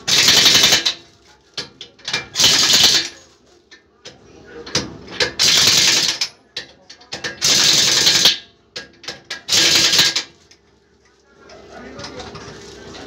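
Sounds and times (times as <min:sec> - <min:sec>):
impact wrench rattling: 0:00.1 - 0:01.0, 0:01.6 - 0:03.3, 0:04.6 - 0:10.4.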